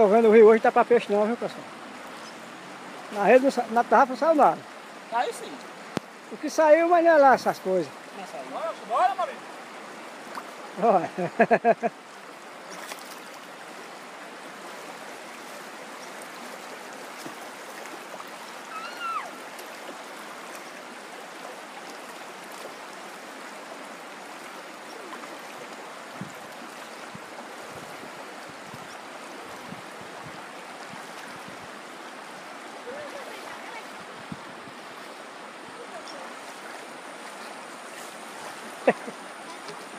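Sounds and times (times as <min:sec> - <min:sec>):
river water running over rocks: 0:00.0 - 0:39.9.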